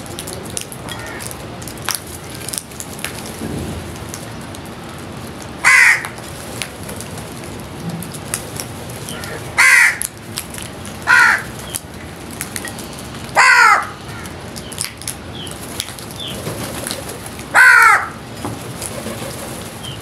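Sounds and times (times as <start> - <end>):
crows cawing harshly: 0.9 - 1.3, 5.6 - 6.2, 9.1 - 10.1, 11.0 - 11.6, 13.4 - 14.4, 17.5 - 18.3
beaks tapping on concrete: 14.2 - 17.0.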